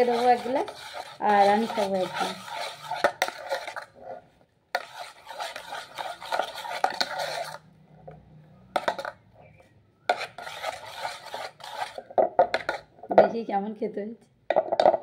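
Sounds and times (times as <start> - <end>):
hand mashing fruit pulp in metal pot: 0.0 - 3.9, 4.8 - 7.6, 10.1 - 12.9
scraping and knocking on metal: 0.0 - 4.2, 4.8 - 7.6, 8.8 - 9.2, 10.1 - 12.9.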